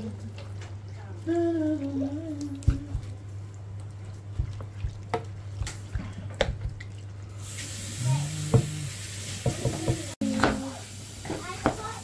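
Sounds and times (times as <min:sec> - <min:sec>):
wet bubbling: 0:01.3 - 0:09.6
wooden spatula knocking in pan: 0:04.3 - 0:06.8, 0:09.4 - 0:10.6
sizzling hiss: 0:07.3 - 0:12.0.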